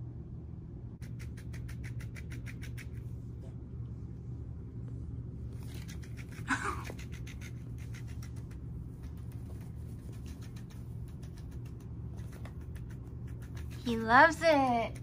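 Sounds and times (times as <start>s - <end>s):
steady low hum: 0.0s - 15.0s
toy fine clicks and scuffs: 1.0s - 3.0s, 5.6s - 15.0s.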